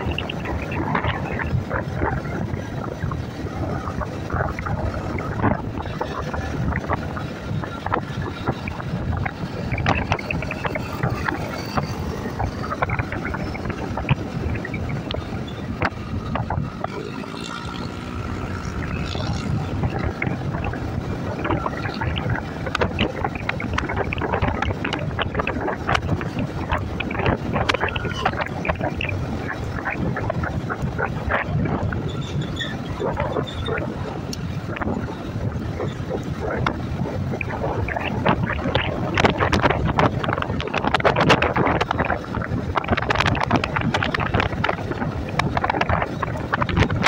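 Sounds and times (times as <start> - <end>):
motorcycle engine: 0.0 - 37.0
road noise: 0.0 - 47.0
wind buffeting microphone: 0.0 - 47.0.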